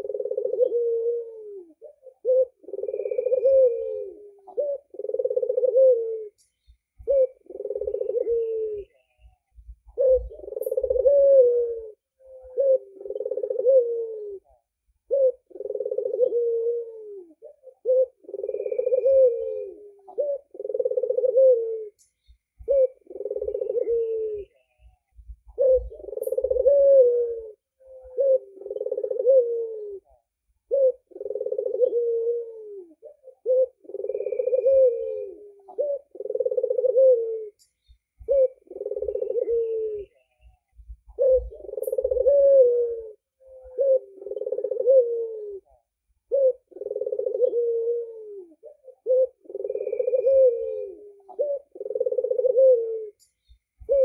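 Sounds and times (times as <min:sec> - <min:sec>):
dove cooing: 0:00.0 - 0:54.0.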